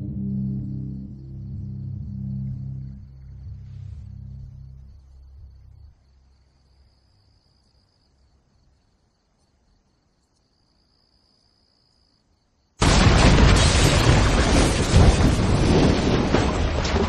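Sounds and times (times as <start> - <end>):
low rumble: 0.0 - 6.4
crickets trilling: 0.1 - 16.9.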